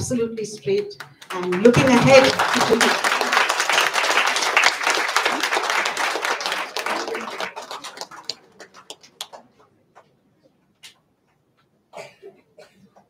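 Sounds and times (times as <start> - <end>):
audience applause: 1.1 - 9.6.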